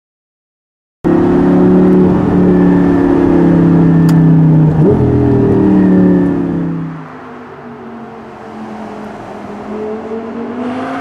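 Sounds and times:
sports car engine running loudly: 1.1s - 8.2s.

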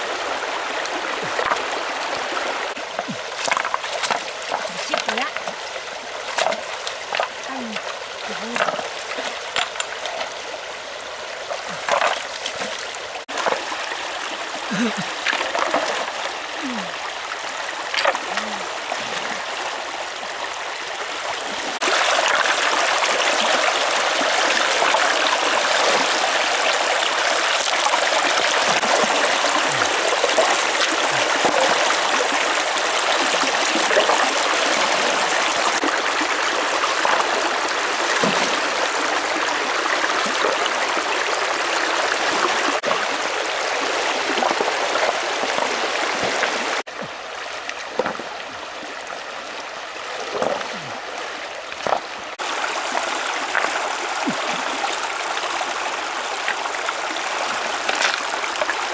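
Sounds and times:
stream running over rocks: 0.0s - 58.9s
water splashing: 0.0s - 58.9s
stones knocking: 2.8s - 5.6s, 6.3s - 10.4s, 17.9s - 18.4s, 47.9s - 48.3s, 51.8s - 52.1s, 57.8s - 58.7s.

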